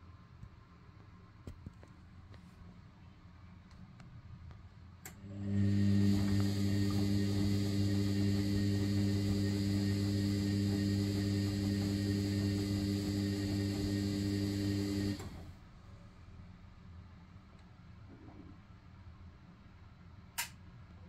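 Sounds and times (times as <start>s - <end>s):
washing machine motor humming: 5.1s - 15.6s.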